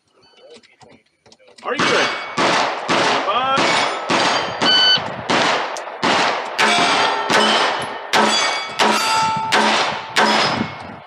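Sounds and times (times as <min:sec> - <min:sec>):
pistol shots: 0:01.7 - 0:10.8
shot timer beep: 0:04.6 - 0:05.0
metallic ring of steel plates: 0:06.6 - 0:09.6.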